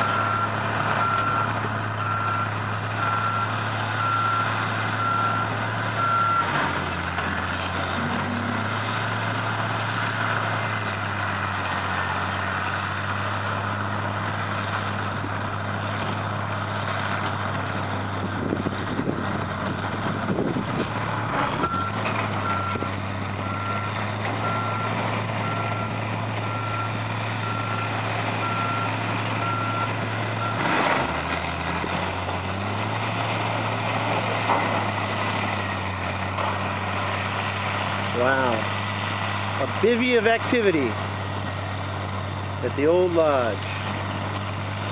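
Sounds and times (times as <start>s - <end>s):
diesel engines running: 0.0s - 44.9s.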